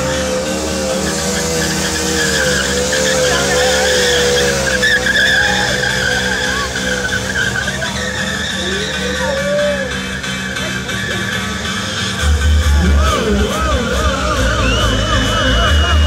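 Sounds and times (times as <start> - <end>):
motorcycle engine at high revs: 0.0 - 9.3.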